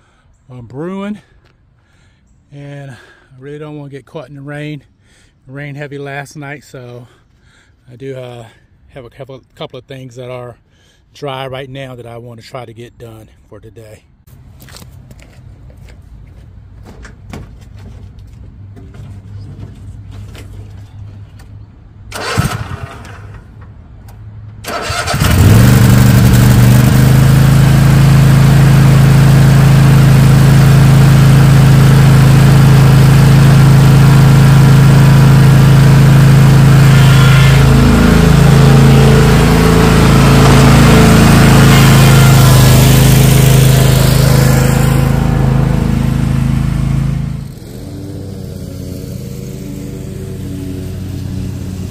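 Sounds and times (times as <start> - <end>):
mower engine running: 22.1 - 23.5, 24.7 - 51.9.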